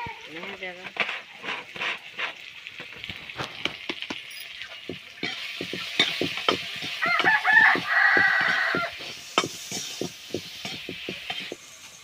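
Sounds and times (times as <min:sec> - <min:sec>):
food sizzling in oil: 0:00.0 - 0:12.0
ladle scraping metal pan: 0:00.4 - 0:03.0, 0:05.2 - 0:11.7.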